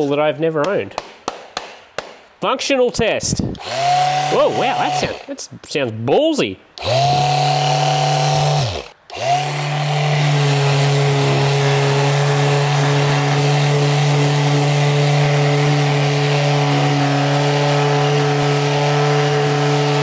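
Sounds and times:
electric sander sanding wood: 0:03.6 - 0:05.4, 0:06.8 - 0:20.0.

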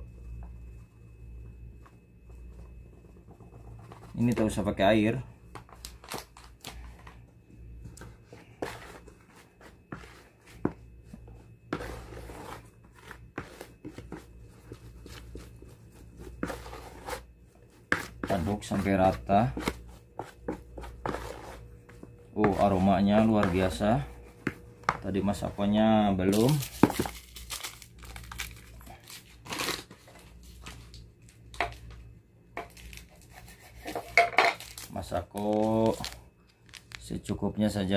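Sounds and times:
dough scraping and rustling: 0:08.0 - 0:31.0, 0:32.7 - 0:36.2
seasoning sachet crinkling: 0:26.3 - 0:28.8.

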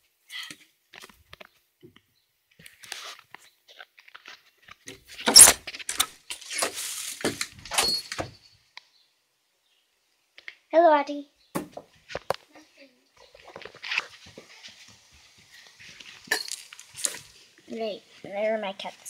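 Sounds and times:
objects rustling and rattling: 0:02.6 - 0:08.6, 0:13.2 - 0:17.7.

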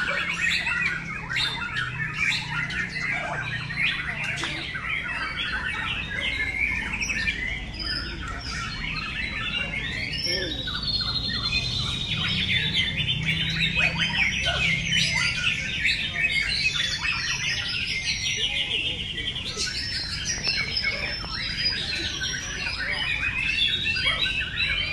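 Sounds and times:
many birds singing: 0:00.0 - 0:24.9.

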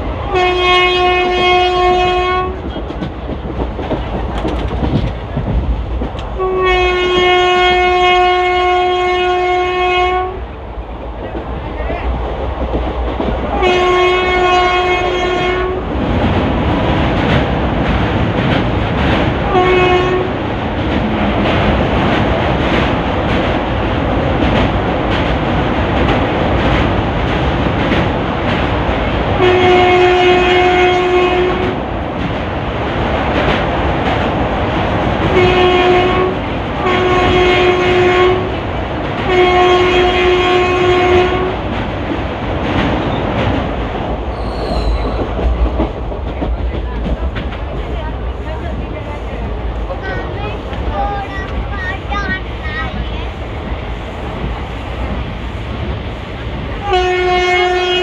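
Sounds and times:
train wheels clattering on rails: 0:00.0 - 0:08.4, 0:10.8 - 0:58.0
locomotive horn: 0:00.3 - 0:02.6, 0:06.4 - 0:10.4, 0:13.6 - 0:15.9, 0:19.5 - 0:20.4, 0:29.4 - 0:31.8, 0:35.3 - 0:38.5, 0:39.3 - 0:41.6, 0:56.8 - 0:58.0.

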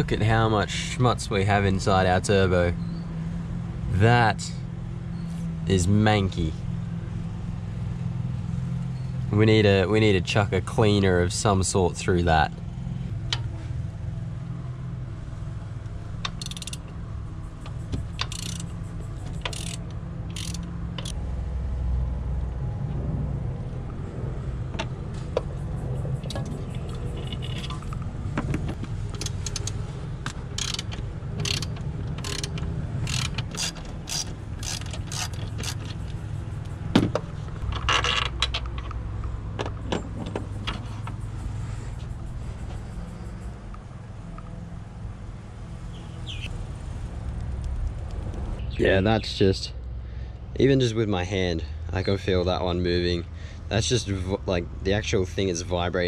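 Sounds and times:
ratchet wrench clicking: 0:16.2 - 0:21.2, 0:26.2 - 0:28.0, 0:29.1 - 0:36.9
low rumble: 0:21.1 - 0:30.6.

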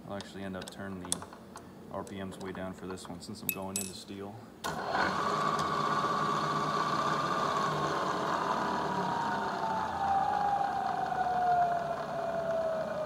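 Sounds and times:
milling machine whining: 0:04.7 - 0:13.0.

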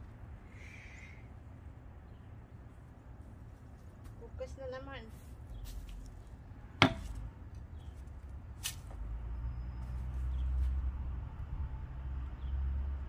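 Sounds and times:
shovel striking soil: 0:08.6 - 0:08.9.

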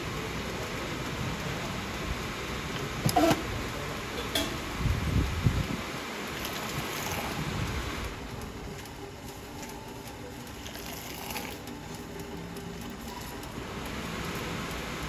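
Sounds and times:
tea pouring into cup: 0:06.2 - 0:07.6, 0:08.8 - 0:14.0.

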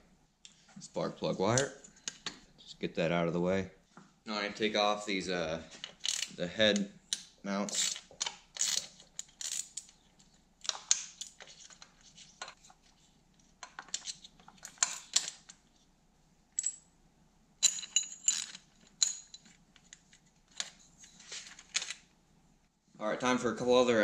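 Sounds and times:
wrench and bolts clinking: 0:05.8 - 0:06.4, 0:17.6 - 0:19.6.

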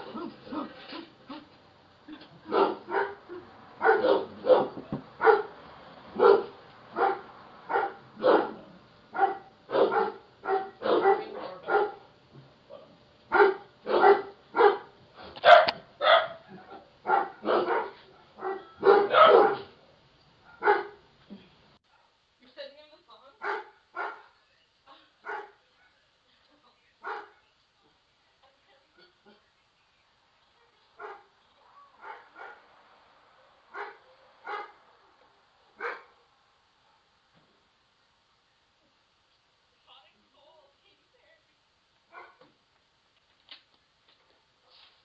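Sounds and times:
dogs barking: 0:02.4 - 0:12.1, 0:13.3 - 0:19.8, 0:20.4 - 0:21.0, 0:23.4 - 0:24.3, 0:25.2 - 0:26.0, 0:27.0 - 0:27.4, 0:30.6 - 0:32.7, 0:33.7 - 0:34.9, 0:35.8 - 0:36.2, 0:42.1 - 0:42.5.

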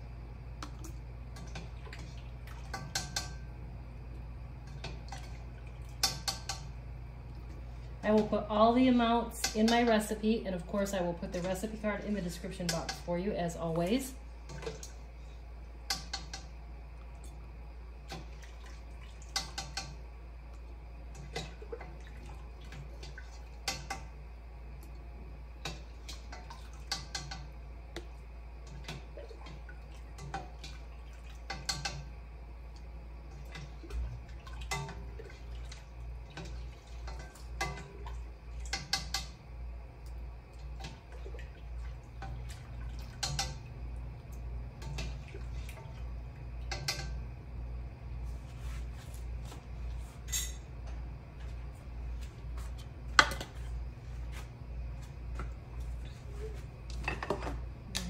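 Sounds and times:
light dripping: 0:18.1 - 0:48.2.

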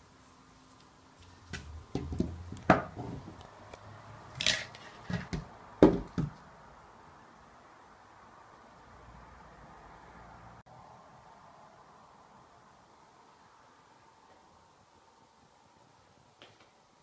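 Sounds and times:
parts knocking on wooden table: 0:01.6 - 0:03.4, 0:04.4 - 0:06.4.

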